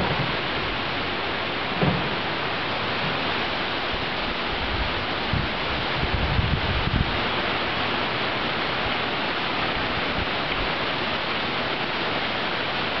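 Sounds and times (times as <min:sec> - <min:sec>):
wind buffets on microphone: 0:03.9 - 0:07.4.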